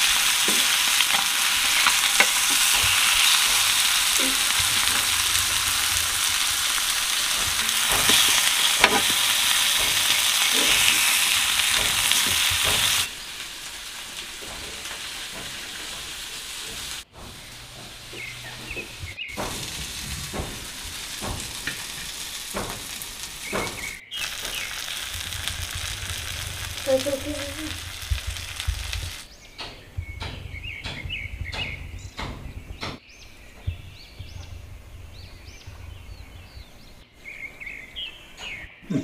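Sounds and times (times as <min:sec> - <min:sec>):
metal ladle scraping pan: 0:00.0 - 0:05.6
fish sizzling in hot oil: 0:00.0 - 0:18.1, 0:18.7 - 0:29.3
birds chirping: 0:00.0 - 0:39.0.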